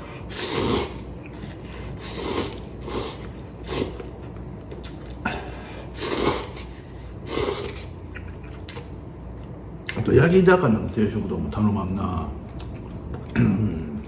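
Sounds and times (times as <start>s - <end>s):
man slurping noodles: 0.1s - 4.1s, 5.9s - 8.0s.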